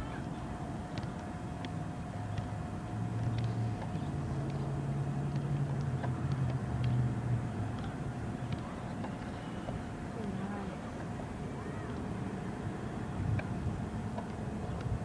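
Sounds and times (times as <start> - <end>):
passing vehicle engine hum: 2.9 - 8.5
soccer ball taps: 7.7 - 10.4.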